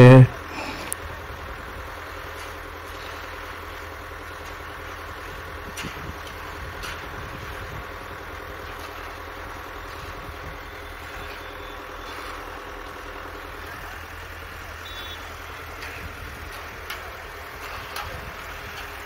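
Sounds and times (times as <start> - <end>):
diesel truck engine running: 0.0 - 19.0.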